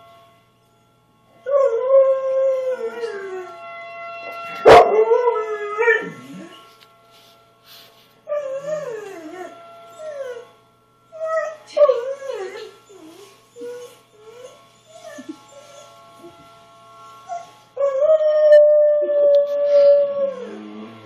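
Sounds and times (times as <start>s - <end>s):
dog howling: 1.4s - 3.6s, 4.5s - 6.7s, 8.3s - 16.0s, 17.3s - 21.0s.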